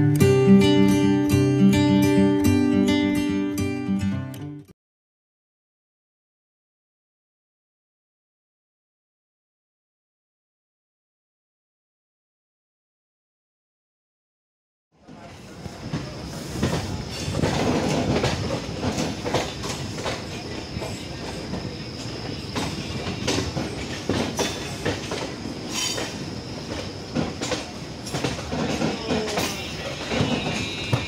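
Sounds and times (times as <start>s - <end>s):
steady train rumble: 15.0s - 31.0s
train wheels clattering over rails: 15.0s - 31.0s.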